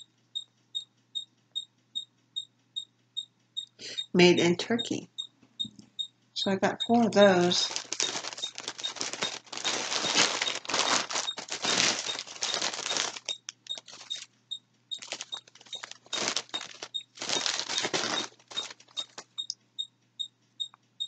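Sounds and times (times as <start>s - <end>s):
packaging rustling and crinkling: 7.0s - 14.3s, 15.0s - 19.4s.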